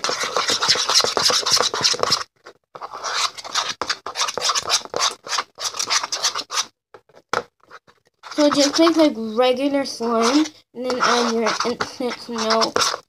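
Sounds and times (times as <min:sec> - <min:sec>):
utensil scraping slime in plastic bowl: 0:00.0 - 0:06.7, 0:07.6 - 0:13.0.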